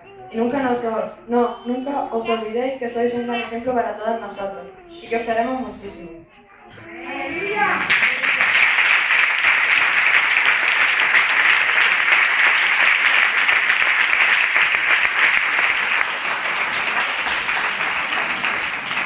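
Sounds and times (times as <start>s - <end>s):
crowd applauding: 7.4s - 19.0s.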